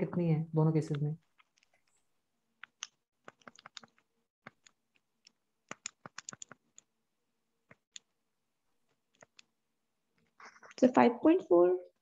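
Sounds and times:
keyboard keys clicking: 0:02.6 - 0:06.9.

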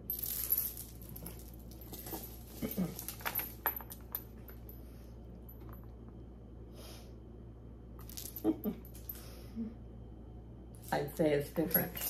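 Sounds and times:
jewelry clinking: 0:00.0 - 0:06.1, 0:08.0 - 0:09.4, 0:10.8 - 0:12.0
steady low hum: 0:00.0 - 0:12.0.

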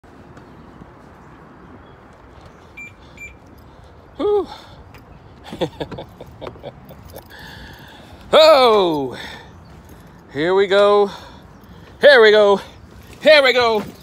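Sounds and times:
short electronic beeps: 0:02.8 - 0:03.4.

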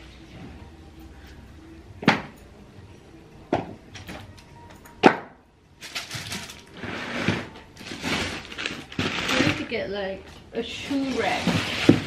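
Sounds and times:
rustling and shuffling: 0:05.8 - 0:12.0.

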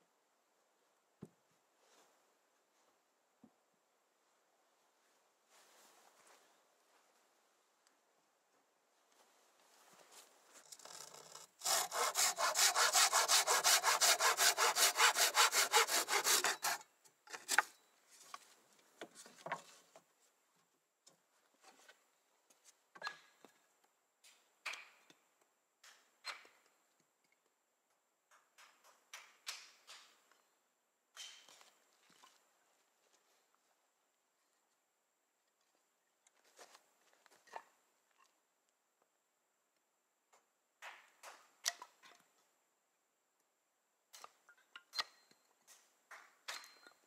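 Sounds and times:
hand saw cutting wood: 0:10.7 - 0:17.7.

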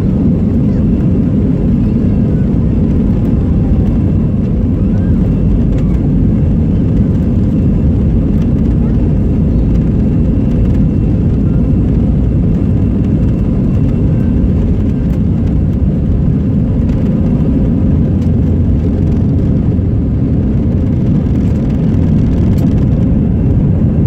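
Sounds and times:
jet engines rumbling: 0:00.0 - 0:24.0.

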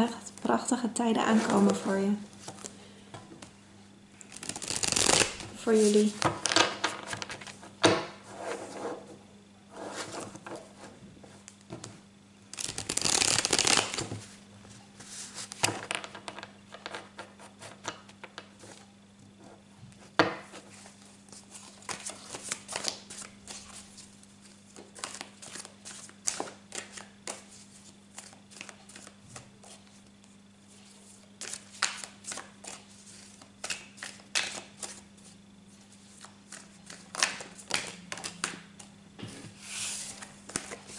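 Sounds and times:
cards being shuffled: 0:04.3 - 0:07.6, 0:12.5 - 0:14.3, 0:21.3 - 0:29.9.

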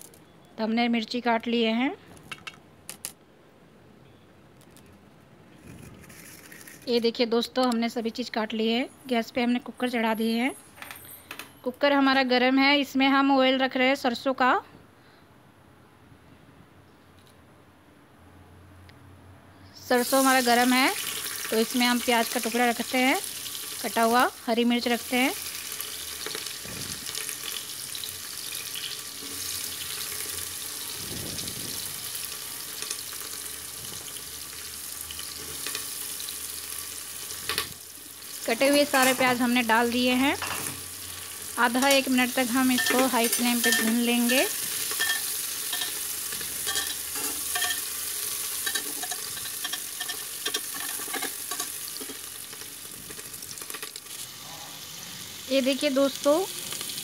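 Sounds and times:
onion sizzling in hot oil: 0:19.8 - 0:57.0
metal spoon scraping and tapping pot: 0:42.7 - 0:47.9, 0:48.6 - 0:52.2.

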